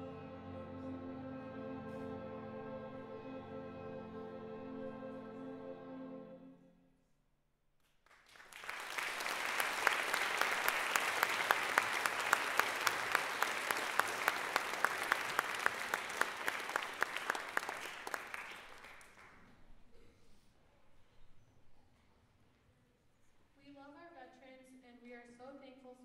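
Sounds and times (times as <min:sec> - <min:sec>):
person clapping nearby: 0:08.1 - 0:19.4
audience applause: 0:08.1 - 0:19.5
concert band held chord: 0:09.3 - 0:18.2.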